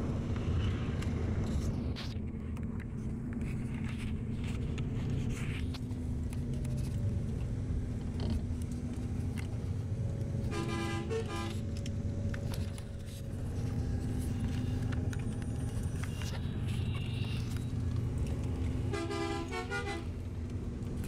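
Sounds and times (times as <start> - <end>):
engine and road rumble: 0.0 - 21.0
car horn honking: 10.5 - 11.6, 18.9 - 20.1.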